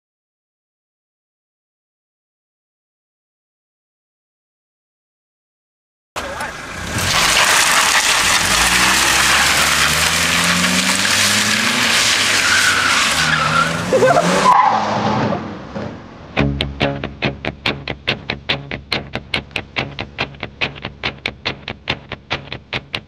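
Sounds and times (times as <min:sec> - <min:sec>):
car tyres squealing: 0:06.2 - 0:16.2
car engine revving: 0:06.2 - 0:16.9.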